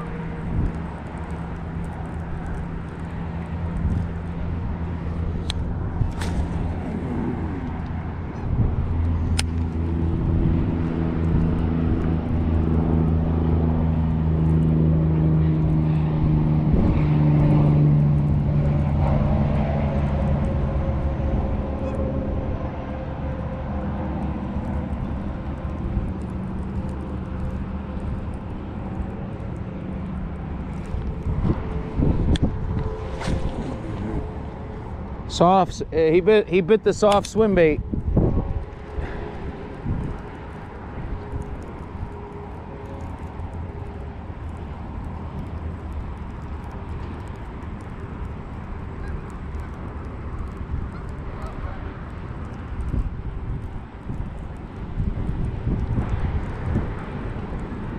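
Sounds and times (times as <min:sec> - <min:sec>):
motor droning hum: 0:00.0 - 0:36.3.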